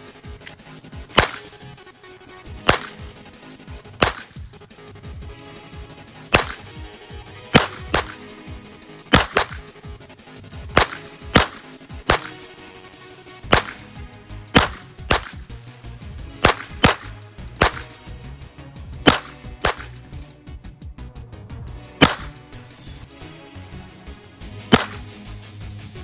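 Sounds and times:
pistol shots: 0.4s - 1.8s, 2.5s - 4.6s, 5.7s - 9.9s, 10.7s - 15.6s, 16.3s - 18.1s, 19.0s - 20.1s, 22.0s - 22.4s, 24.7s - 25.1s.

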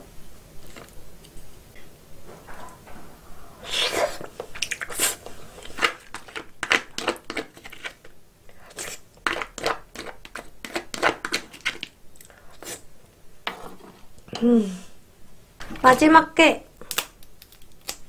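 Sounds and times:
person chewing with wet smacks: 4.4s - 7.6s.

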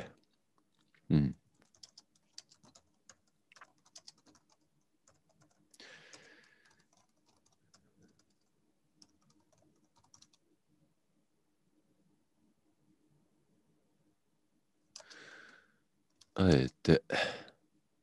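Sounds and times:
computer keyboard typing: 1.5s - 10.4s.

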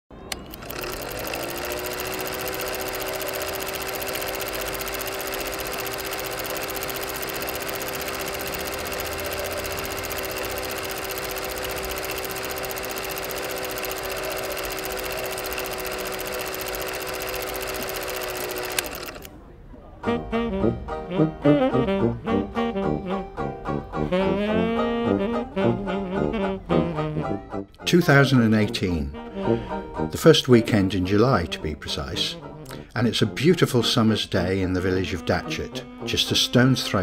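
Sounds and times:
film projector running: 0.3s - 19.3s.

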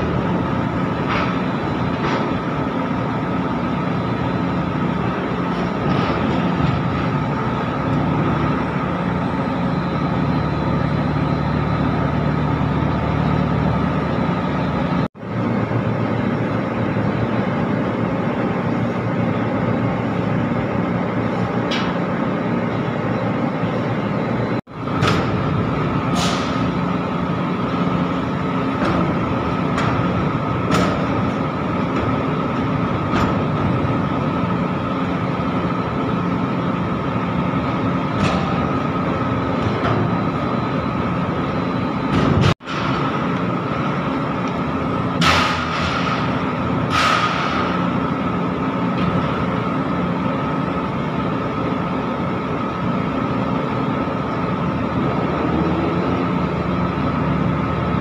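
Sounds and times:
crane machinery hum and whine: 0.0s - 58.0s
sharp metallic knocks: 45.2s - 47.9s.

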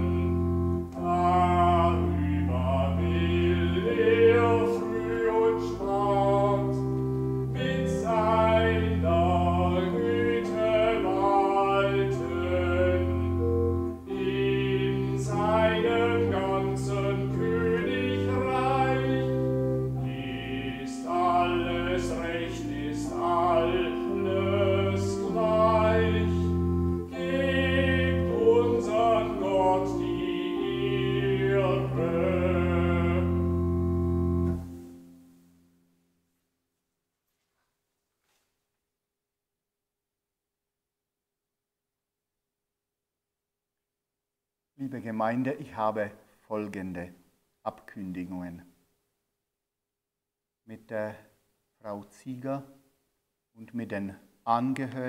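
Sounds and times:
person singing a hymn: 0.0s - 35.2s
church organ chords: 0.0s - 35.9s.

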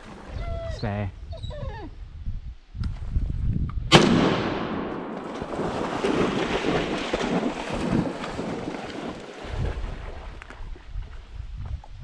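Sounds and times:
shotgun blast echo: 3.9s - 5.4s
shallow water splashing: 5.2s - 10.7s.

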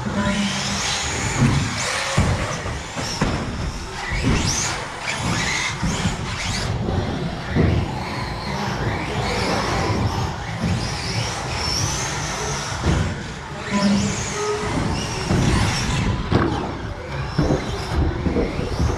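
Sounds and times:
rc car motors whining: 0.0s - 18.9s
rumble of tyres: 0.0s - 18.9s.

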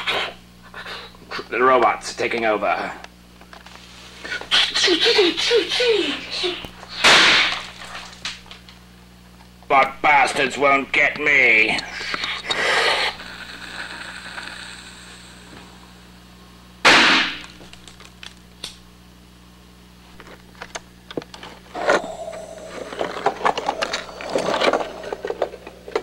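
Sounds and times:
loud gunshot: 7.0s - 7.6s, 16.8s - 17.4s.

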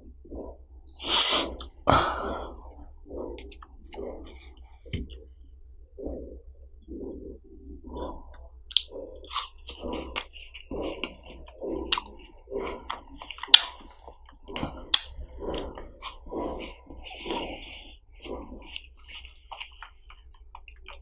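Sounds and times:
licking and wet chewing: 0.1s - 21.0s.

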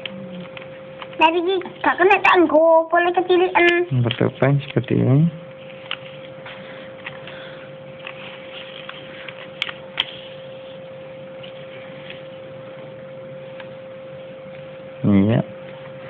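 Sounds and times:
faint electrical hum: 0.0s - 16.0s
paper being folded and rustling: 8.0s - 10.8s.

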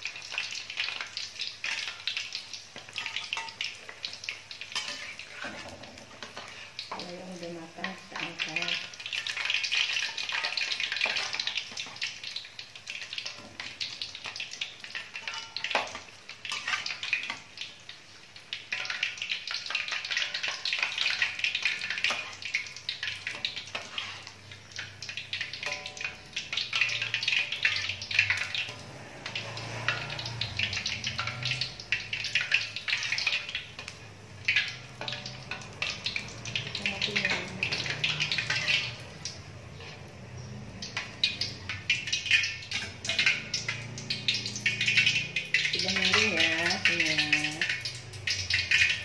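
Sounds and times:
fritters sizzling in hot oil: 0.0s - 49.0s
metal skimmer clinking on pan: 15.2s - 17.0s, 25.4s - 28.8s, 34.5s - 39.1s.

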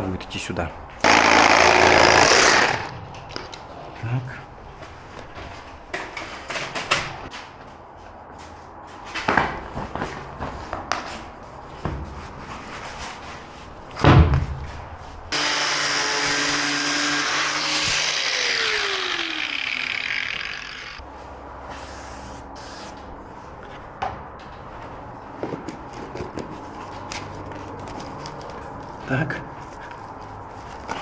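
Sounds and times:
power tool cutting pipe: 1.0s - 3.0s, 15.3s - 21.0s.

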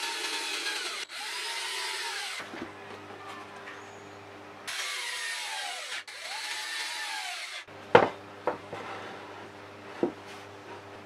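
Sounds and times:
power drill boring into wood: 0.0s - 2.5s, 4.7s - 7.7s.

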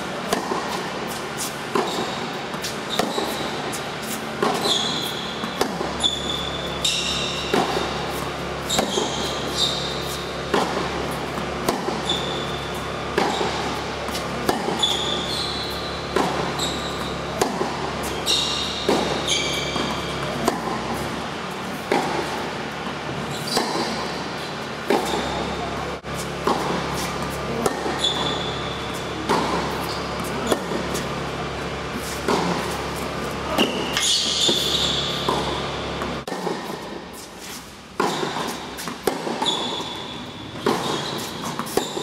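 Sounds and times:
shoes squeaking on court: 0.0s - 42.0s
tennis racquet hitting ball: 0.0s - 42.0s
ball bouncing: 4.3s - 21.1s, 24.8s - 31.2s, 32.2s - 36.9s.

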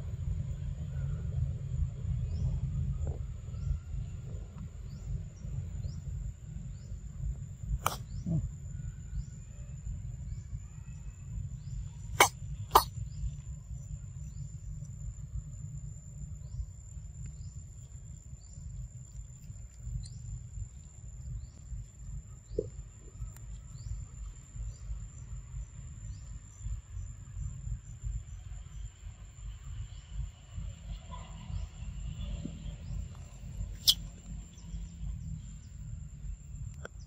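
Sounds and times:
insects droning: 0.0s - 37.0s
low rumble: 0.0s - 37.0s
low cough-like sound: 12.2s - 12.9s.

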